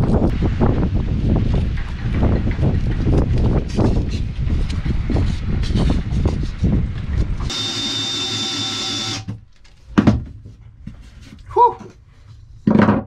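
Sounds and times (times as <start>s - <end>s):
wind buffeting microphone: 0.0s - 7.5s
cordless drill whining: 7.5s - 9.4s.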